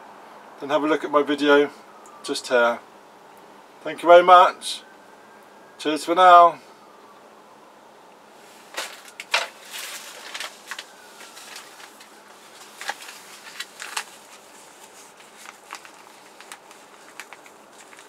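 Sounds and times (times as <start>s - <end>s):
paper packets rustling: 8.5s - 18.0s.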